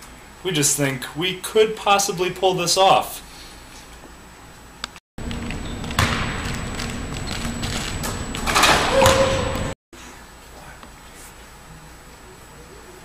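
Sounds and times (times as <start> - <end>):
hall hum: 5.2 - 9.8
slam at basketball rim: 6.0 - 6.4, 8.6 - 9.7.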